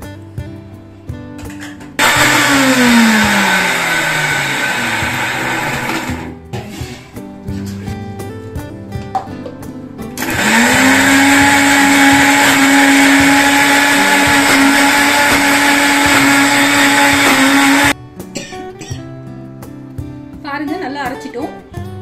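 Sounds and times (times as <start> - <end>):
mixer grinder motor running: 2.0 - 6.9, 10.2 - 18.0.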